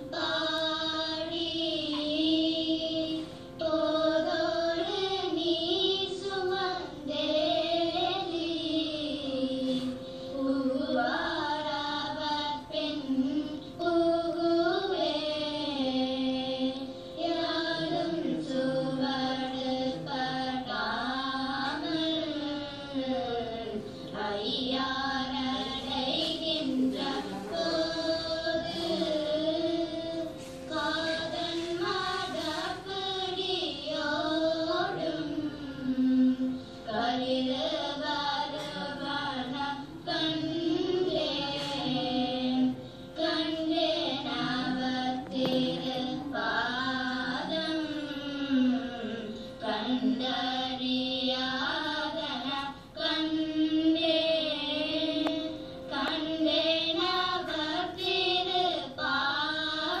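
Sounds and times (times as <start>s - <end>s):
steady drone note: 0.0s - 52.4s
girl singing hymn: 0.0s - 60.0s.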